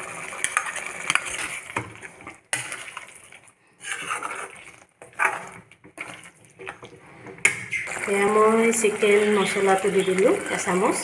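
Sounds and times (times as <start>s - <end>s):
spatula scraping a metal pan: 0.4s - 3.1s, 3.8s - 6.2s, 7.4s - 8.0s.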